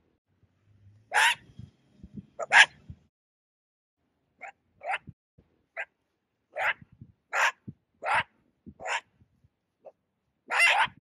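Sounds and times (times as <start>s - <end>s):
animal's harsh calls: 1.1s - 1.5s, 2.4s - 2.8s, 4.4s - 5.2s, 5.8s - 9.1s, 9.8s - 11.0s.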